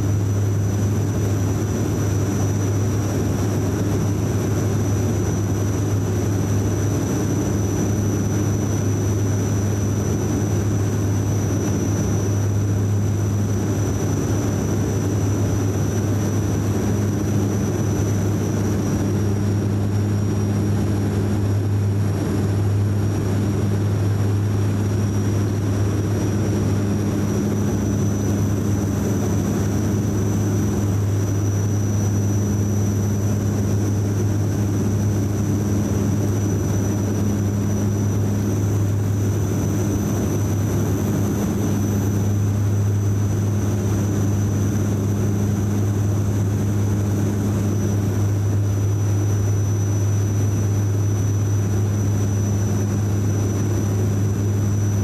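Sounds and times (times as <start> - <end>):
deep aircraft cabin hum: 0.0 - 55.0
thin high engine whine: 0.0 - 55.0.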